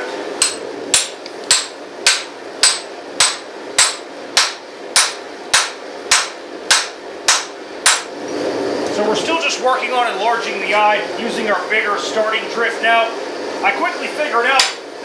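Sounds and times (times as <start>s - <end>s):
hammer striking steel drift: 0.4s - 8.1s.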